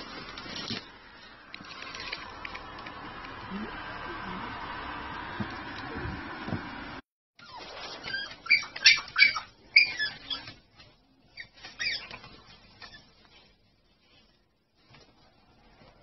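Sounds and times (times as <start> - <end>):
dog whining: 7.4 - 10.6, 11.3 - 12.2.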